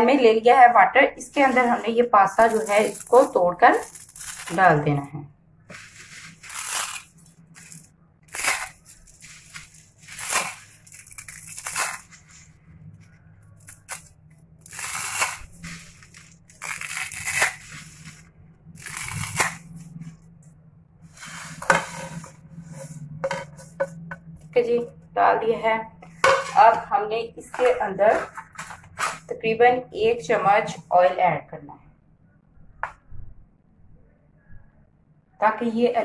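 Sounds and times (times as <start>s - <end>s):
dry pasta crunching and snapping: 2.4s - 4.7s, 5.8s - 12.5s, 13.5s - 18.2s, 18.8s - 19.9s.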